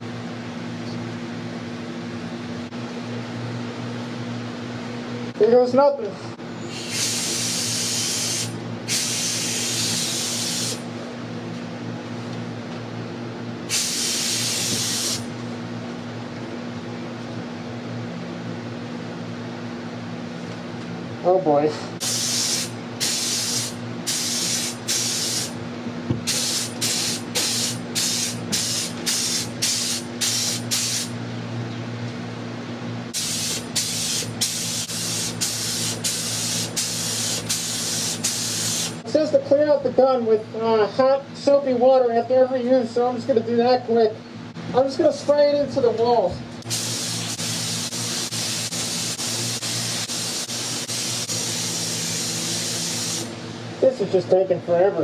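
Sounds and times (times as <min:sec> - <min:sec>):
steady low hum: 0:00.0 - 0:55.0
spray gun air hissing in bursts: 0:06.7 - 0:10.9, 0:13.7 - 0:15.3, 0:22.0 - 0:25.6, 0:26.2 - 0:31.2, 0:33.1 - 0:39.0, 0:46.6 - 0:53.4.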